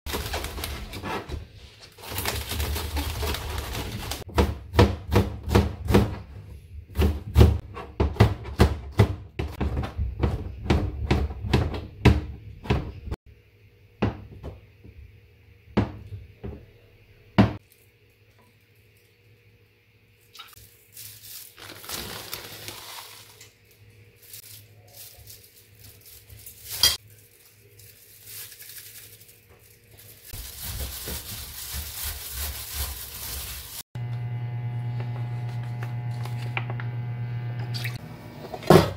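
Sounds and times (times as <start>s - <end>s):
plastic bag rustling: 0.0s - 4.3s, 20.6s - 34.0s.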